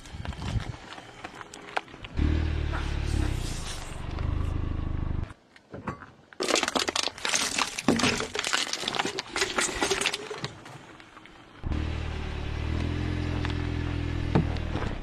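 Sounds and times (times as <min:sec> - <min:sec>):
cans crunching under tyre: 0:00.0 - 0:02.2, 0:06.3 - 0:11.5.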